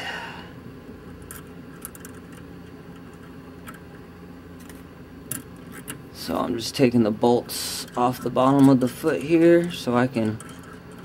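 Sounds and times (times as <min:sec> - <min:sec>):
steady low hum: 0:00.0 - 0:11.0
small metal parts clicking: 0:01.1 - 0:03.9, 0:04.6 - 0:06.0, 0:07.8 - 0:11.0.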